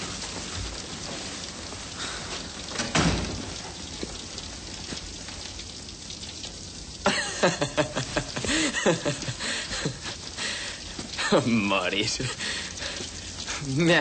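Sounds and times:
heavy rain hissing: 0.0s - 14.0s
man laughing loudly: 7.0s - 10.3s, 11.1s - 12.6s.

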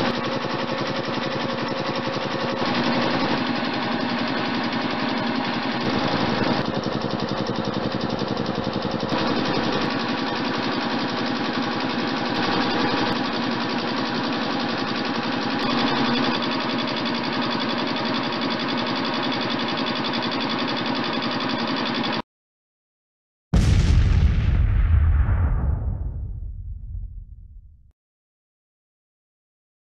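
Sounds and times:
air compressor running: 0.0s - 22.2s.

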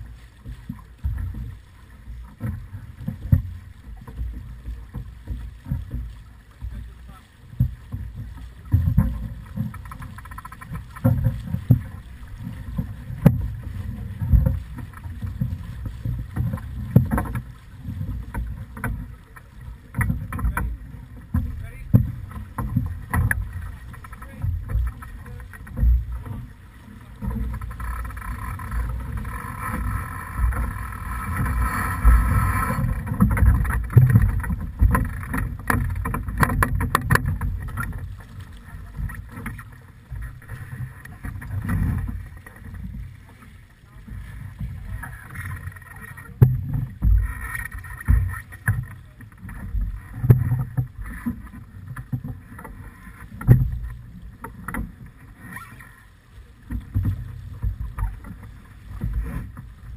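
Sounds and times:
water rushing past hull: 0.0s - 59.9s
wind on microphone: 2.5s - 43.3s.

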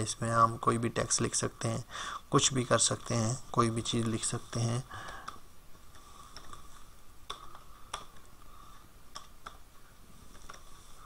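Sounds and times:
faint steady hum: 0.0s - 11.0s
keyboard and mouse clicks: 5.0s - 8.4s, 9.1s - 9.6s, 10.2s - 10.7s.

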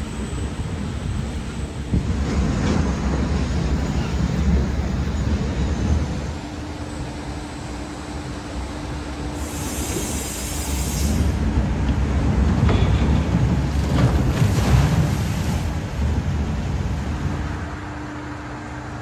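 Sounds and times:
low rumble from ride: 0.0s - 19.0s
water rushing down a chute: 12.2s - 17.4s.

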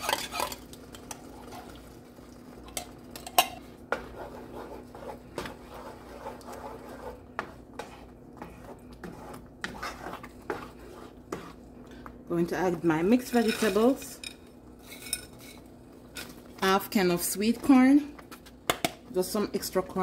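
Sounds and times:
spoon scraping metal can: 0.0s - 0.6s
wooden spoon stirring thick filling: 0.0s - 18.5s.

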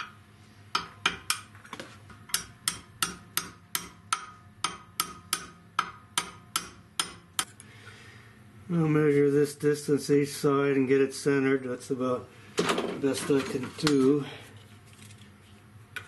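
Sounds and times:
hammer tapping steel punch: 0.0s - 1.6s, 2.2s - 7.5s.

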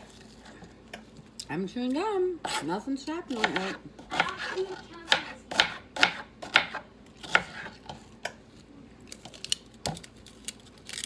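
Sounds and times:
knife chopping on cutting board: 3.3s - 8.0s.

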